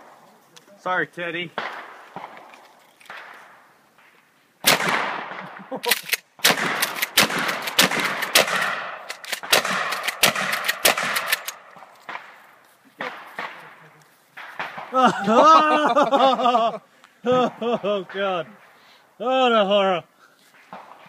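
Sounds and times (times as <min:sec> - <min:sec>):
shotgun shots: 0:01.5 - 0:02.5, 0:04.6 - 0:12.4, 0:14.4 - 0:15.0.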